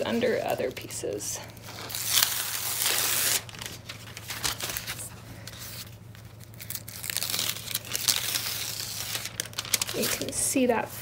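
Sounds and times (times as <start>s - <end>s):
paper crinkling and crackling: 1.6s - 11.0s
paper backing ripping off fabric: 1.8s - 5.0s.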